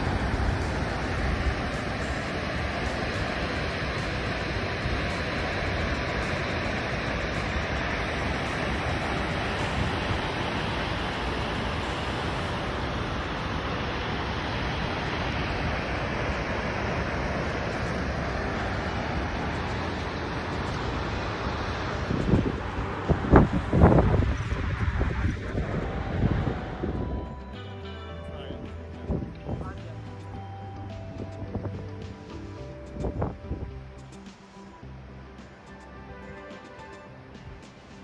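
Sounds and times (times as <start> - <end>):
waterfall roaring: 0.0 - 27.5
wind on microphone: 0.0 - 27.6, 28.6 - 34.2.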